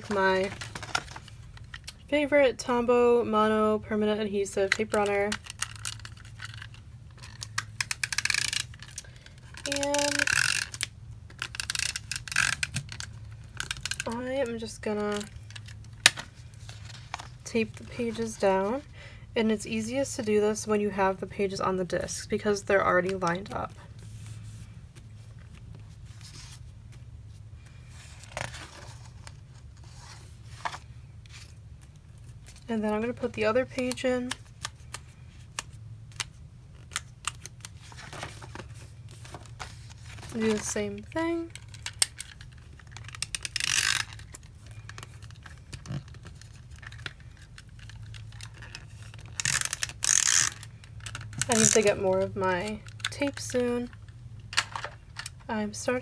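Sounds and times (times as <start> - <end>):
page turning: 0.0 - 1.9, 27.7 - 31.6, 36.2 - 41.0
paper rustling: 37.5 - 41.0.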